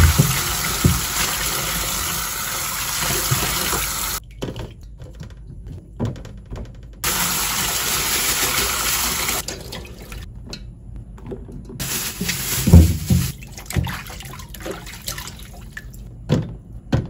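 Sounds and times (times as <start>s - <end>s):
tap water pouring into basin: 0.0s - 4.2s
water sloshing and splashing: 0.0s - 5.9s, 7.0s - 10.6s, 11.2s - 16.1s.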